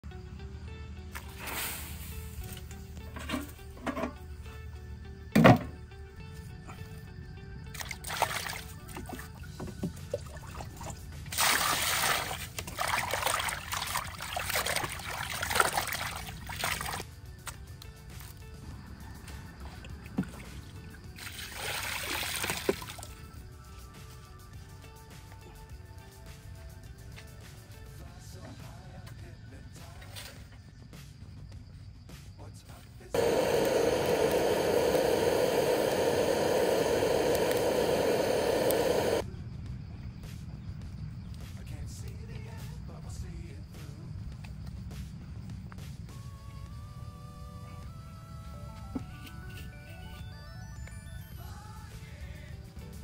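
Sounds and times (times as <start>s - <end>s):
electric fire starter hissing: 1.2s - 3.2s, 33.2s - 39.2s
hands sloshing intestines in water: 10.2s - 17.0s
water pouring into metal basin: 10.3s - 17.0s.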